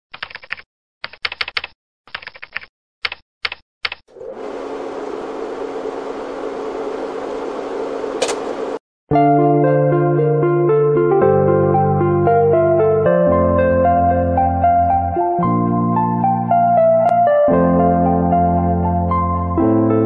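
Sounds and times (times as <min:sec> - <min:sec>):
steady rushing noise with hum: 0:04.1 - 0:08.8.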